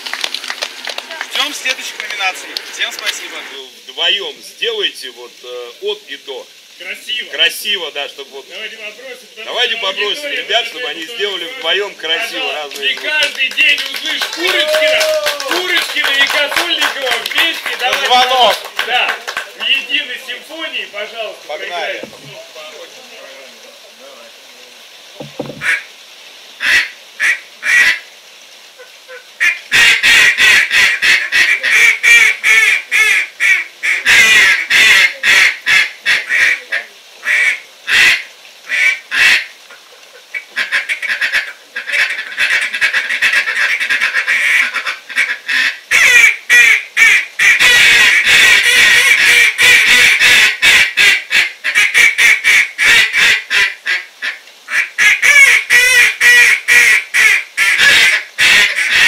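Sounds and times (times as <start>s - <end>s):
duck call rapid chattering: 25.4s - 25.8s, 26.6s - 28.0s, 29.1s - 36.6s, 37.2s - 39.5s, 40.3s - 59.0s
duck call quacks: 25.5s - 25.9s, 26.6s - 28.0s, 28.8s - 59.0s.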